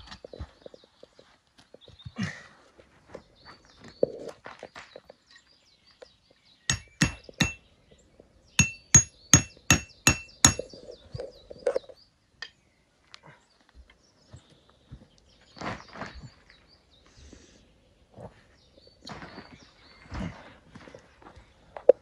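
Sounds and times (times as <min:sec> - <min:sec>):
hammer striking metal stake: 0:06.7 - 0:07.6, 0:08.6 - 0:10.8.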